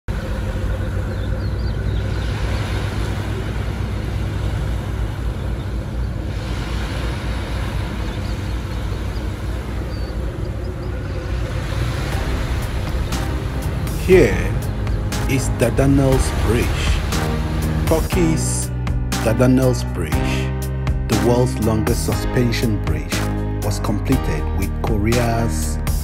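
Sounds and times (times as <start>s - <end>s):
seaside ambience rumble and hiss: 0.1s - 18.6s.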